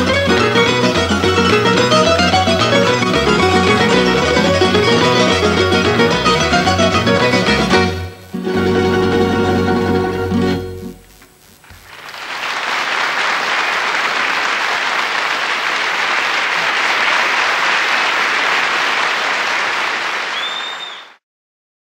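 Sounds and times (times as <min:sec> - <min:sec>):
audience applauding: 0:00.0 - 0:07.8, 0:11.6 - 0:21.2
string band playing: 0:00.0 - 0:11.2.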